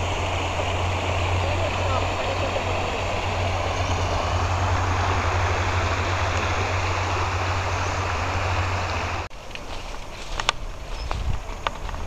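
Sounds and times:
low rumble: 0.0 - 9.3
river rushing over rocks: 0.0 - 9.3.

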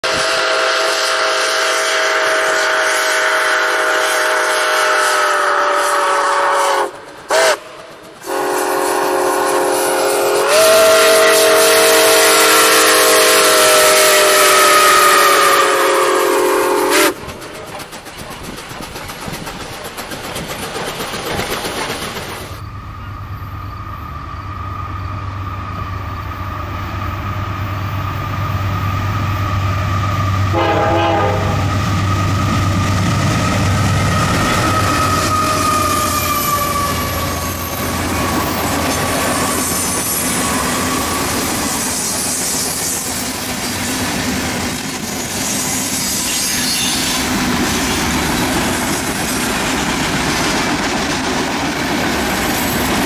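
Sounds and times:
steam locomotive chime whistle: 0.0 - 17.2, 22.6 - 43.8, 45.2 - 48.6
diesel locomotive rumble: 0.0 - 46.0
train running noise: 0.0 - 53.0.

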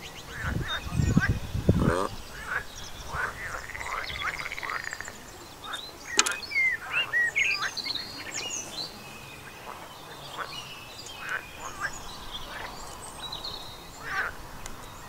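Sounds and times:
small birds trilling and chirping: 0.0 - 15.0
sharp click: 6.1 - 6.4.

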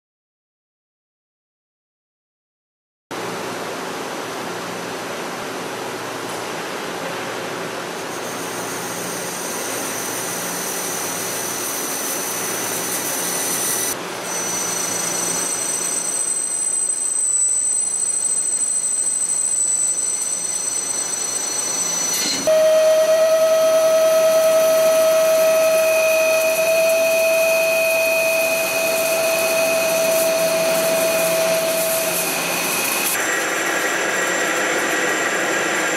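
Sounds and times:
drill whine: 8.0 - 35.9
lathe cutting metal: 8.1 - 35.9.

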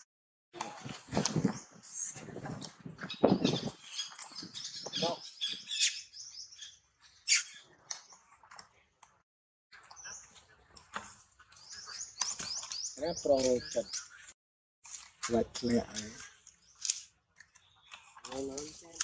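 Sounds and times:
small birds chirping: 1.4 - 8.9, 9.7 - 19.0.

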